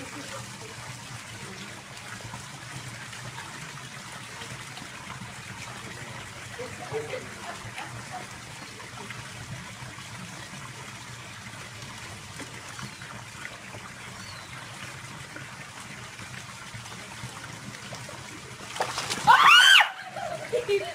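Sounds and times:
pond water trickling: 0:00.0 - 0:20.9
loud high-pitched cry: 0:19.3 - 0:20.2.

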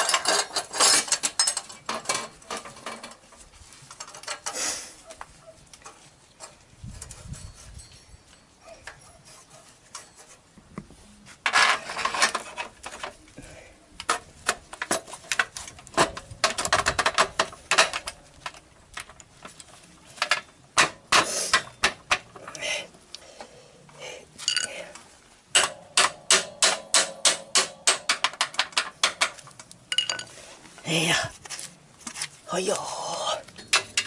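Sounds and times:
metallic clinks and rattles: 0:00.0 - 0:03.2, 0:24.4 - 0:24.9, 0:28.2 - 0:30.4.

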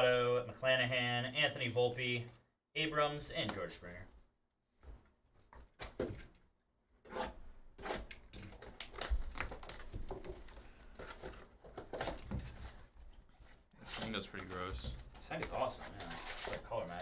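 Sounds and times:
cardboard tearing and rustling: 0:07.8 - 0:12.9, 0:13.8 - 0:17.0.

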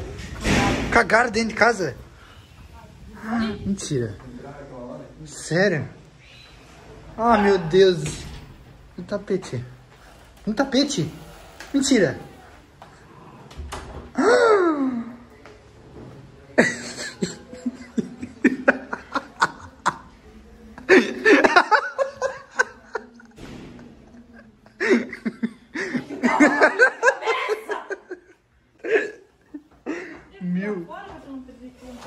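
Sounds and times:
people laughing: 0:16.6 - 0:30.2.

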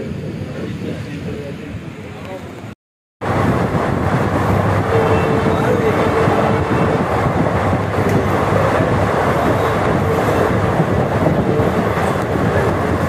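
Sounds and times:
train wheels rumbling on rails: 0:00.0 - 0:13.0
wind noise rushing: 0:03.2 - 0:13.0.

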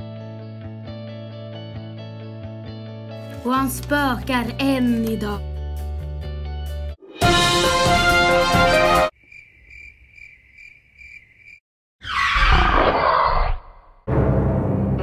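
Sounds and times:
music: 0:00.0 - 0:09.1, 0:14.1 - 0:15.0
cricket chirping: 0:09.1 - 0:11.6.

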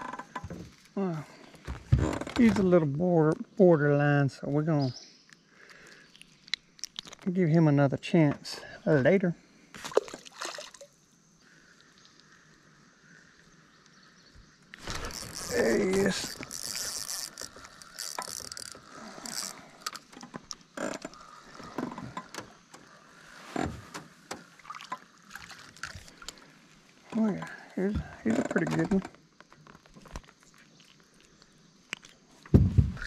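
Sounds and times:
fishing reel clicking and rattling: 0:14.8 - 0:21.4.

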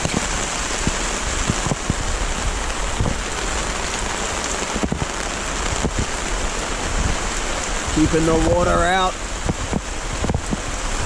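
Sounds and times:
single raindrops striking close: 0:00.0 - 0:03.2
steady rain: 0:00.0 - 0:11.0.

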